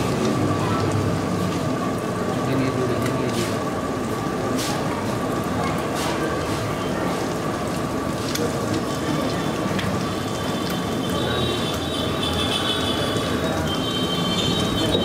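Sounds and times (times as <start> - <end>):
eggs sizzling on a griddle: 2.6 - 15.0.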